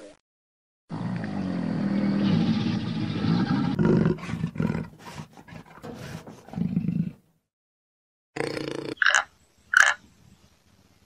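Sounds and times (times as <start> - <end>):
wild animal roaring: 0.9 - 7.2.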